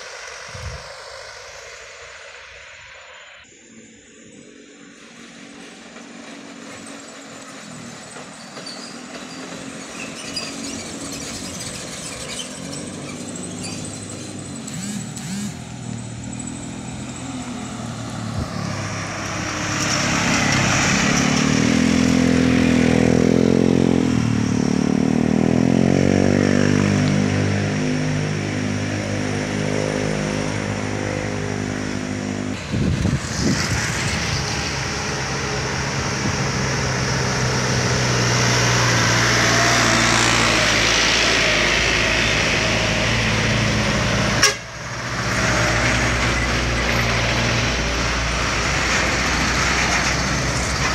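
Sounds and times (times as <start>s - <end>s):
diesel truck engines labouring: 3.7s - 50.9s.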